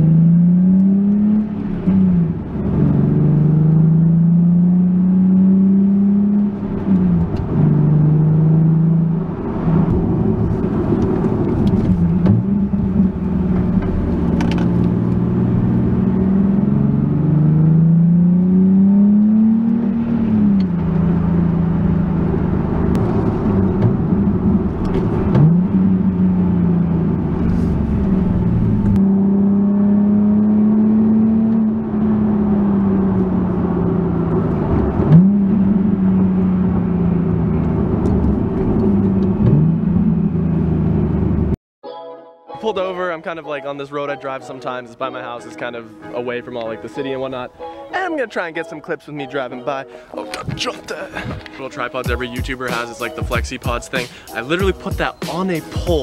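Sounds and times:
car engine accelerating through gears: 0:00.0 - 0:41.6.

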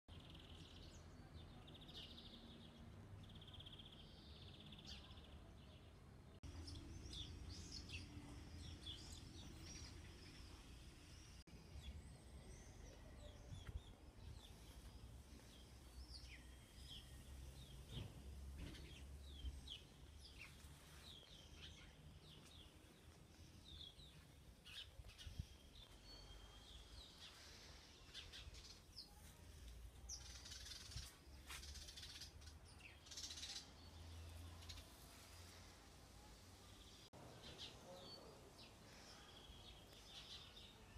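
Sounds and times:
songbirds chirping: 0:00.1 - 0:40.9.

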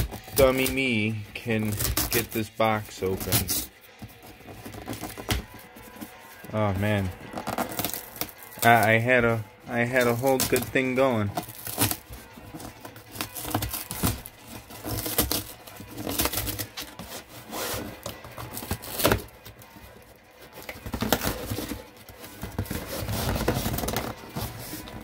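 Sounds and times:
hands scraping cardboard box: 0:00.0 - 0:25.0.

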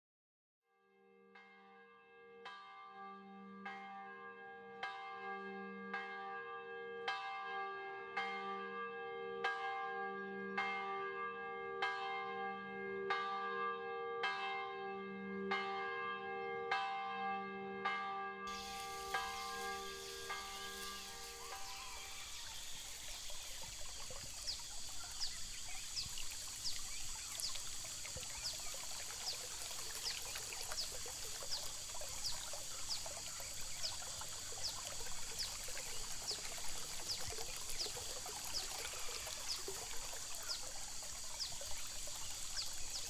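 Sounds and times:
bell strikes: 0:15.5 - 0:22.7
running water rush: 0:18.5 - 0:43.0.

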